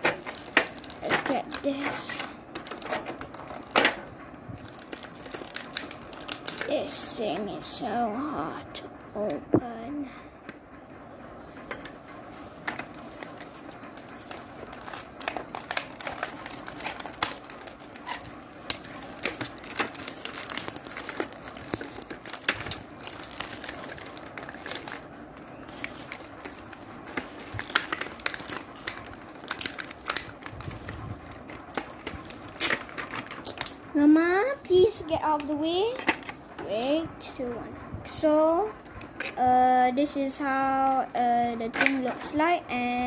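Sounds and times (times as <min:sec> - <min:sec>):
bubble wrap crinkling: 0:00.0 - 0:07.2, 0:11.1 - 0:34.6.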